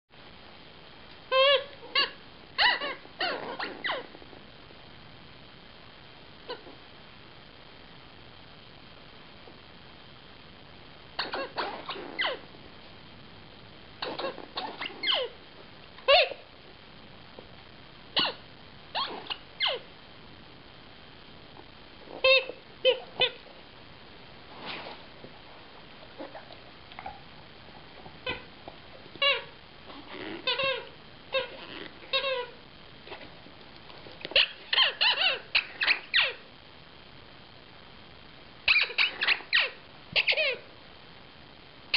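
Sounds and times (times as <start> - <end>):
squeaky toy squeaks: 1.3 - 4.0, 11.2 - 12.4, 14.0 - 15.3, 19.0 - 19.8, 22.2 - 23.4, 29.2 - 29.5, 30.2 - 32.5, 34.4 - 36.4, 38.7 - 40.6.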